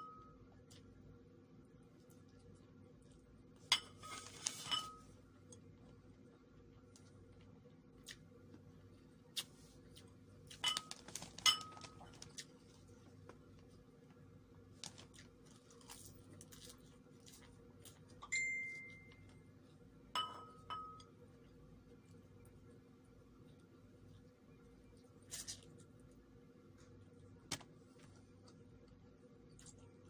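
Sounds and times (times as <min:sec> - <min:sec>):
ceramic tableware clinking: 0:03.7 - 0:05.1, 0:10.6 - 0:11.9, 0:20.2 - 0:21.2.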